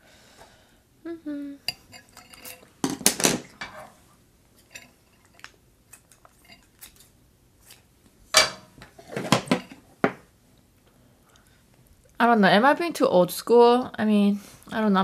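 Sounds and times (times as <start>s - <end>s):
metal utensils clinking on dishes: 1.7s - 2.7s, 4.6s - 6.9s
tongs clattering in metal pan: 1.7s - 2.8s, 4.6s - 7.1s.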